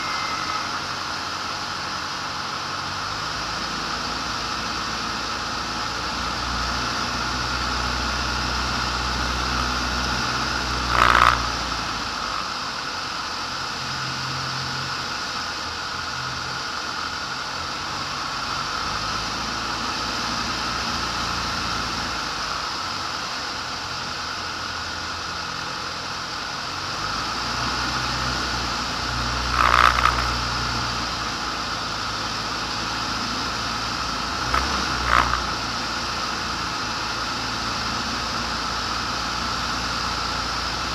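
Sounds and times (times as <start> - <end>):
engine louder bursts: 0.0 - 3.8, 9.2 - 12.7, 28.1 - 37.8
aircraft engine and propeller: 0.0 - 40.9.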